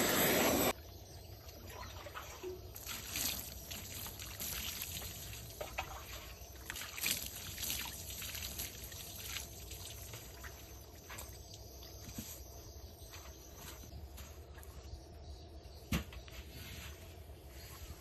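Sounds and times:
water splashing on wooden boards: 0:02.8 - 0:10.7.

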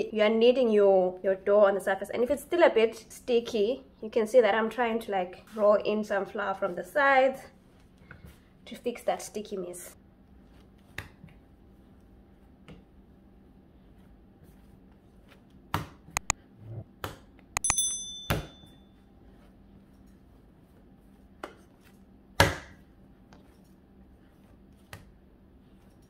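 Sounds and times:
dough knocks and slaps: 0:10.8 - 0:11.4, 0:15.5 - 0:16.1, 0:22.3 - 0:22.9
high ringing clink: 0:17.6 - 0:19.0.

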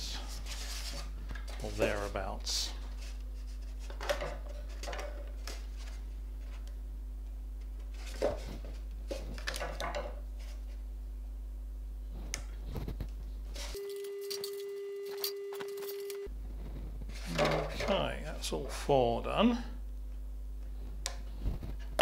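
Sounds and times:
low electrical hum: 0:00.0 - 0:22.0
wire clicks and rustles: 0:12.1 - 0:18.0.

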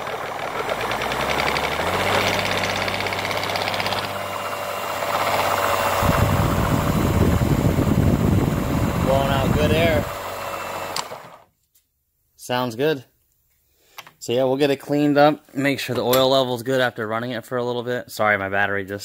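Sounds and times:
drill spinning supercharger: 0:00.0 - 0:11.5
heavy low rumble: 0:05.1 - 0:10.1.

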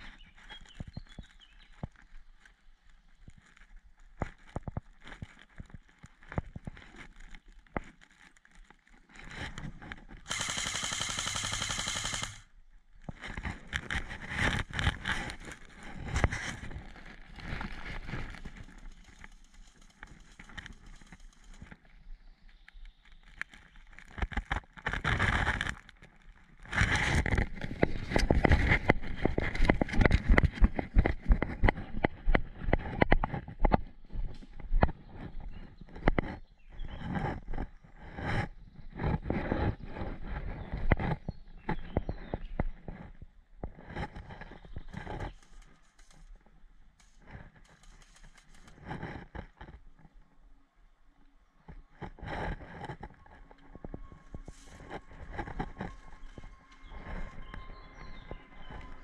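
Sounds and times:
airsoft rifle full-auto firing: 0:10.3 - 0:12.4
footsteps rustling through grass: 0:54.1 - 0:59.0.

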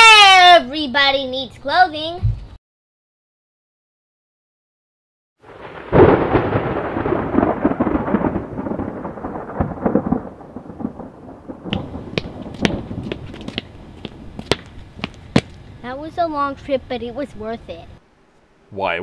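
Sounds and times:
thunder rumbling: 0:05.4 - 0:17.8
footsteps on concrete: 0:11.7 - 0:15.6.

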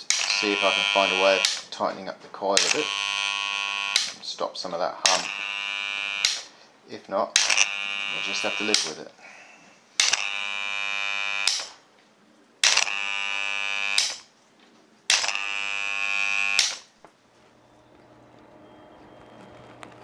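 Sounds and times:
relay coil buzzing: 0:00.0 - 0:01.8, 0:02.6 - 0:04.2, 0:05.0 - 0:06.6, 0:07.4 - 0:09.0, 0:10.0 - 0:11.8, 0:12.6 - 0:14.3, 0:15.1 - 0:20.0.

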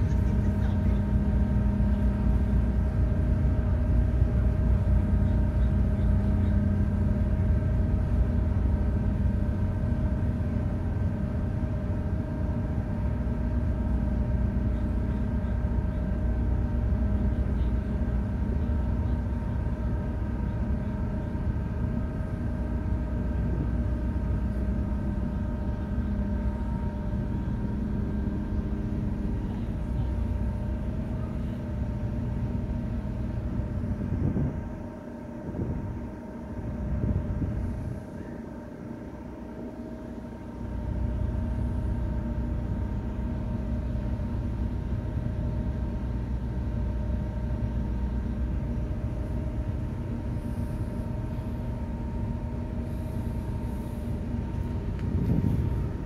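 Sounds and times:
ferry engines rumbling: 0:00.0 - 0:56.0.

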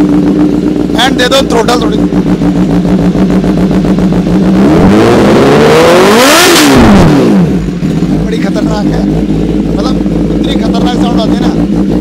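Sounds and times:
motorcycle engine revving: 0:00.0 - 0:12.0.

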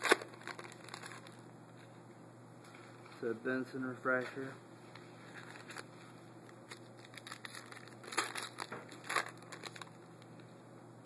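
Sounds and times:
foil wrapper crinkling and tearing: 0:00.0 - 0:01.4, 0:05.2 - 0:10.1.

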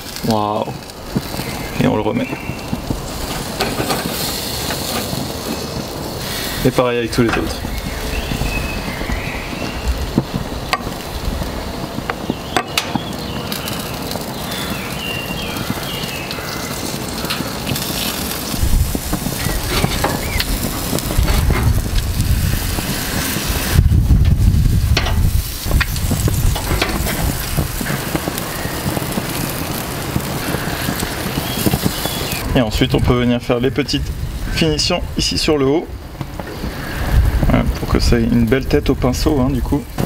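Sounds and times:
grill sizzling: 0:00.0 - 0:40.0
low rumble: 0:18.2 - 0:35.3.

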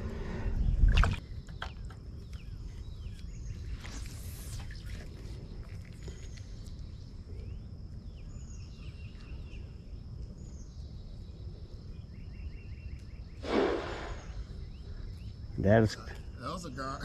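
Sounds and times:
birds chirping and whistling: 0:10.4 - 0:15.5.

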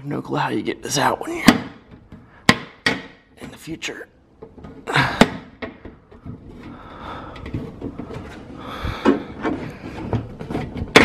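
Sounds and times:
plastic cover rubbing and scraping: 0:06.1 - 0:11.0.

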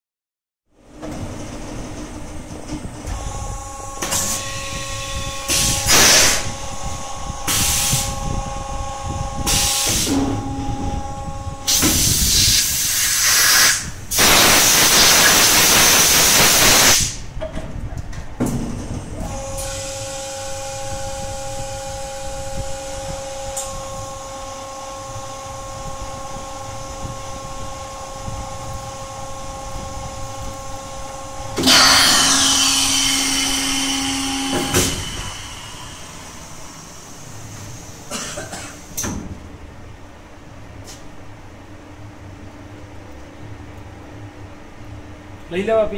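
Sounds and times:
steady machine hum: 0:00.7 - 0:45.9
compressed air hissing: 0:05.5 - 0:06.6, 0:07.5 - 0:08.2, 0:09.4 - 0:10.2, 0:11.7 - 0:17.2.

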